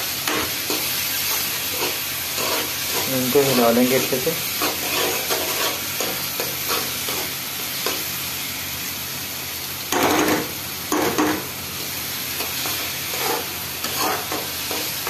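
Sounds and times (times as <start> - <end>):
onions sizzling in oil: 0.0 - 15.0
metal spatula scraping pan: 1.7 - 7.3, 12.6 - 15.0.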